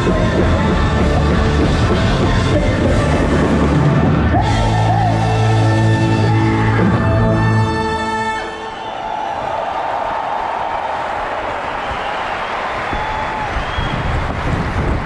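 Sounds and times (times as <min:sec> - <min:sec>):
loud rock music with drums: 0:00.0 - 0:08.3.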